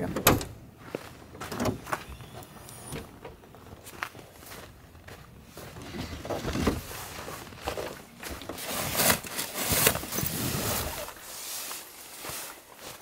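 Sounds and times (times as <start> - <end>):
fabric bags dragged rustling: 8.6 - 12.5.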